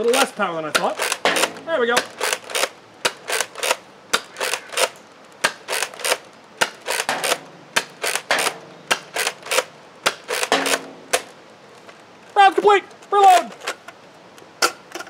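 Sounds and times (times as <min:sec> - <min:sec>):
toy blaster lever clacking: 0:00.7 - 0:11.4.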